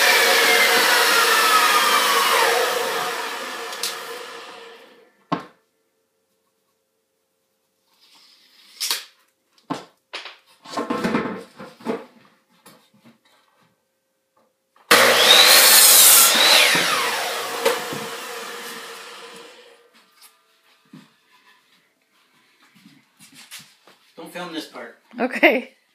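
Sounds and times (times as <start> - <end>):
miter saw cutting wood: 0.0 - 5.0, 14.9 - 19.9.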